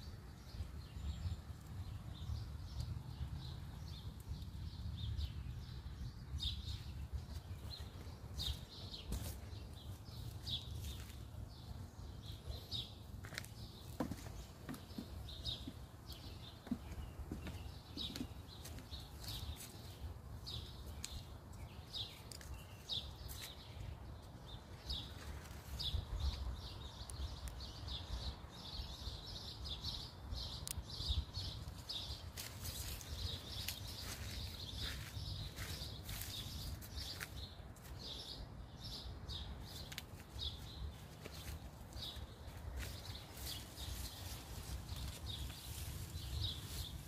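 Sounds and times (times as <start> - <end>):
small birds chirping: 0.0 - 47.0.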